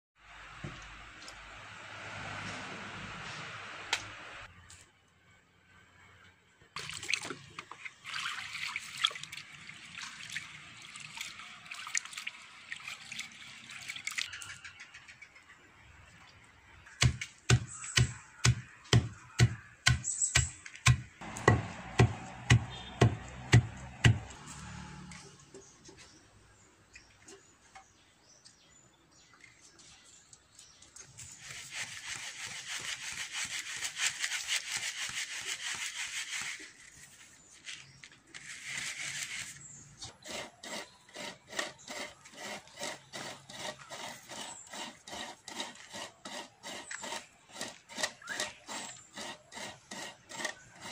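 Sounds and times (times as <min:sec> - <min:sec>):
pestle thudding in mortar: 0:17.0 - 0:24.3.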